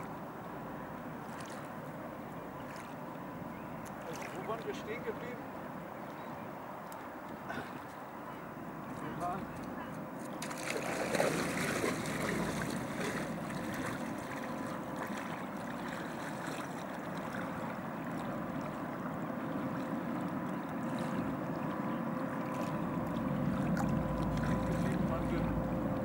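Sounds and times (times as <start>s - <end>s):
faint hum: 0.0s - 26.0s
river water rushing and lapping: 0.0s - 26.0s
low rumble: 22.7s - 26.0s.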